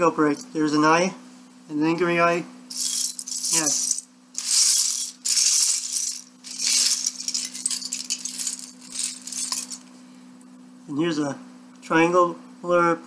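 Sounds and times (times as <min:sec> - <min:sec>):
plastic pieces rattling and clattering: 0:02.7 - 0:09.8.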